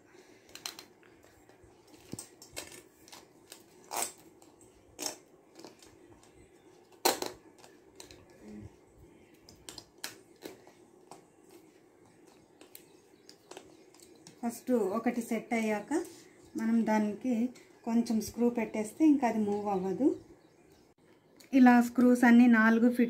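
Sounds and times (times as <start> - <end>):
mop parts clicking and knocking: 5.5 - 8.6, 12.2 - 14.4.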